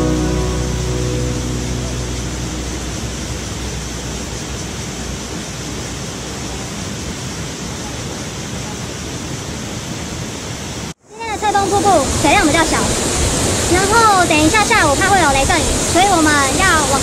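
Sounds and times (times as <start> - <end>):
background music: 0.0 - 4.5
waterfall rushing into pool: 0.0 - 17.0.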